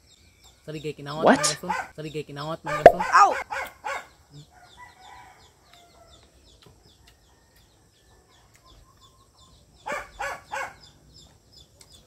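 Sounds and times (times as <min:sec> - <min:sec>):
small birds chirping: 0:00.0 - 0:12.0
chickens clucking: 0:01.2 - 0:01.8, 0:02.7 - 0:03.4.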